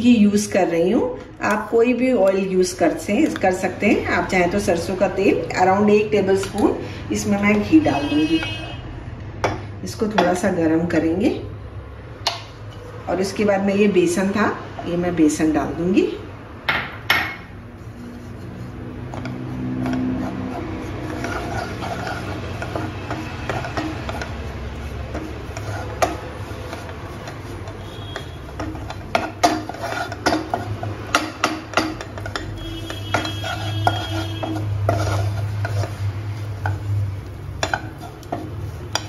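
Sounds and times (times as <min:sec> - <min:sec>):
wooden spatula scraping pan: 0:17.4 - 0:39.0.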